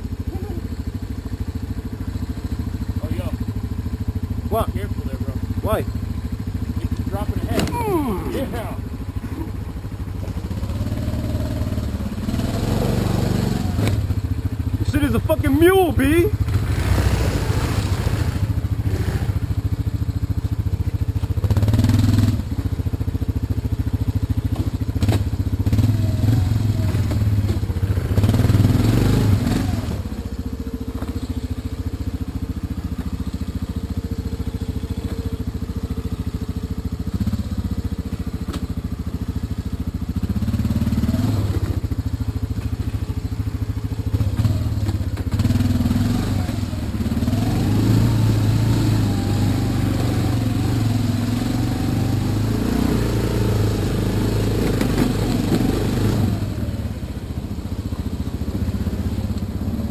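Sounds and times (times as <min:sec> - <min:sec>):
atv engine running: 0:00.0 - 0:59.9.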